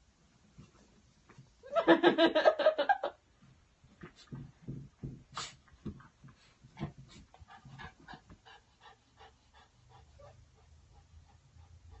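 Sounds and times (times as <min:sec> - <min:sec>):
dog panting: 0:06.3 - 0:12.0.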